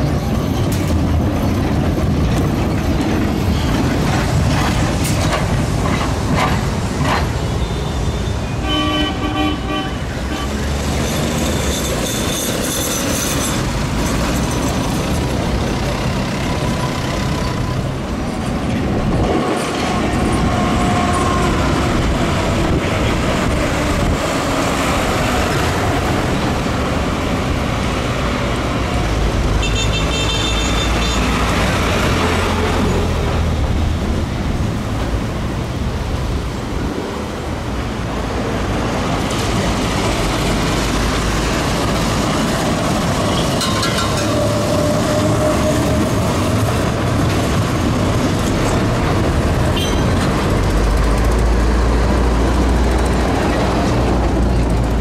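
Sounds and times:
road traffic: 0.0s - 55.0s
tram running: 0.0s - 55.0s.

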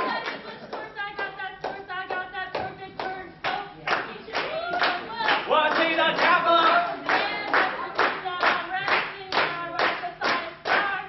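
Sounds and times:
rhythmic clapping: 0.0s - 11.0s
voices singing: 0.0s - 11.0s.

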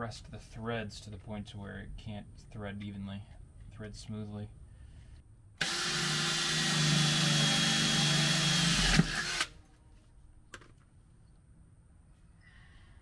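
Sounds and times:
cordless drill drilling into metal: 5.6s - 9.5s.

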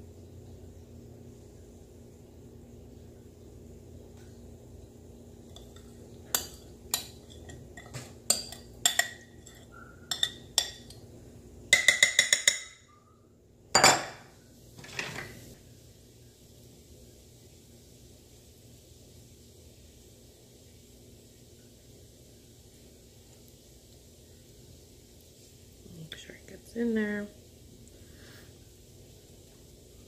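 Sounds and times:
spoon scraping glass bowl: 5.5s - 11.0s.

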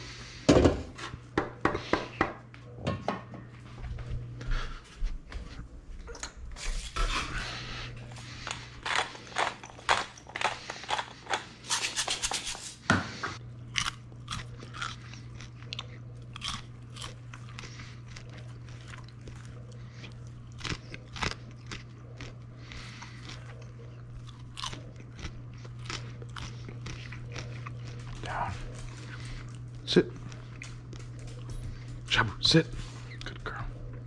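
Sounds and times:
steady low hum: 0.0s - 34.0s
popcorn being chewed: 7.6s - 12.6s, 13.5s - 34.0s.

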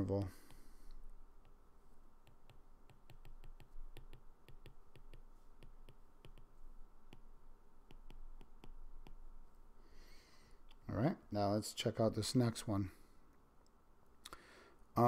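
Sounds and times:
stylus tapping on glass screen: 2.2s - 9.2s.

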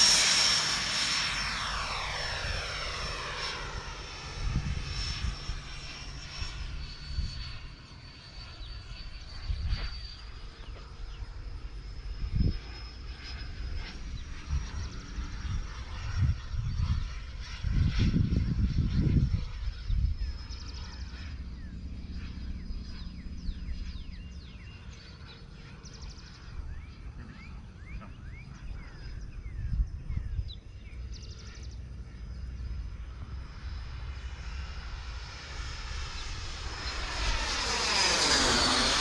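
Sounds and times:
model jet rushing whine: 0.0s - 39.0s
wind rumble on microphone: 1.9s - 7.8s, 8.6s - 24.9s, 26.0s - 34.8s.

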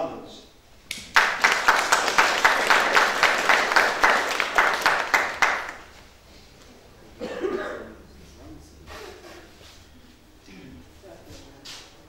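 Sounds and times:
group applause: 0.9s - 6.0s.

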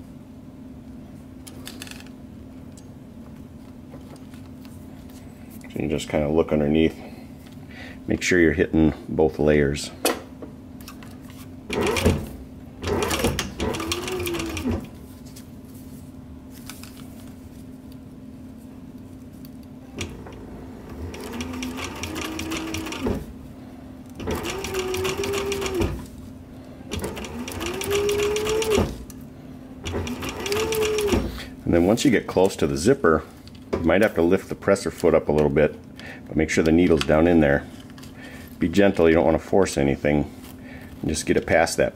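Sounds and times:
sewing machine stitching: 11.7s - 14.9s, 20.0s - 23.3s, 24.2s - 26.0s, 26.9s - 29.0s, 29.8s - 31.4s.

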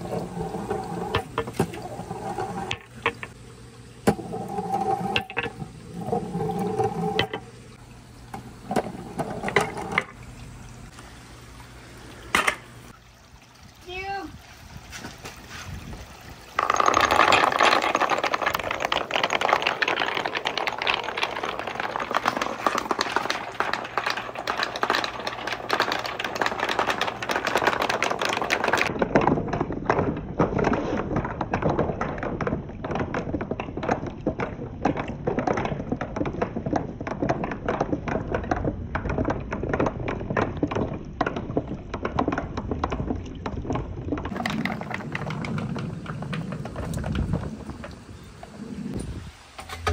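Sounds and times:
marbles rattling down wooden run: 0.0s - 3.4s, 4.2s - 7.4s, 8.7s - 10.2s, 16.5s - 48.3s
running water: 0.0s - 28.9s.

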